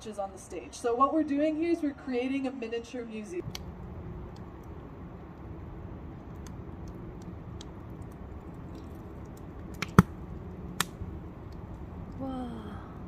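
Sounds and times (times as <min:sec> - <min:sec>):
low fire rumble: 0:00.2 - 0:13.0
wood fire crackling: 0:03.4 - 0:13.0
sharp fire pops: 0:06.1 - 0:12.2.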